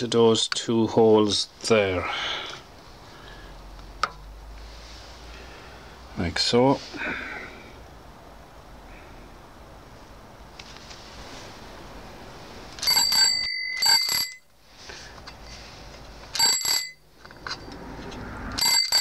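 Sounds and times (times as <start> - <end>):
bicycle-style bell ringing: 12.8 - 14.5, 16.3 - 17.8, 18.6 - 19.0.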